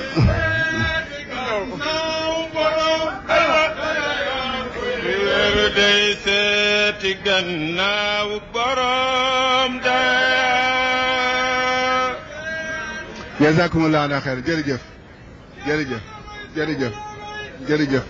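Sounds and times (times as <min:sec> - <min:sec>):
man chanting: 0:00.0 - 0:03.3.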